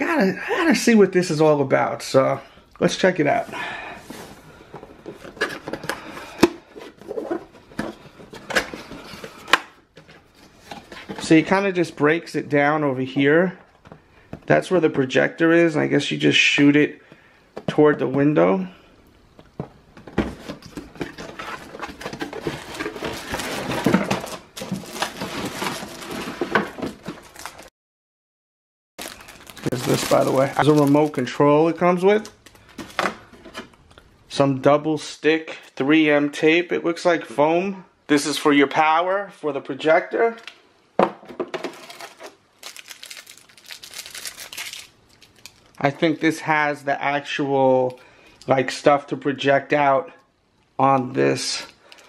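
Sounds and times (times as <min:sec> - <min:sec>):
cardboard box rustling and scraping: 0:20.2 - 0:27.4
plastic wrapping rustling: 0:20.3 - 0:27.7, 0:29.0 - 0:33.4, 0:41.6 - 0:46.4.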